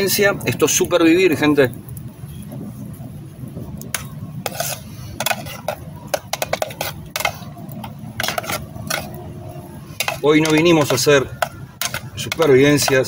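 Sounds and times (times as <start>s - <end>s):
spoon scraping metal pot: 4.0s - 13.0s.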